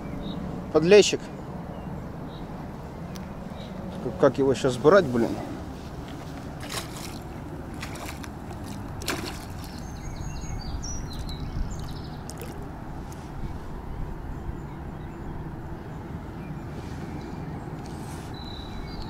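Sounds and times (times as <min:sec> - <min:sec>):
fish splashing at water surface: 0:06.5 - 0:10.0, 0:11.1 - 0:12.8.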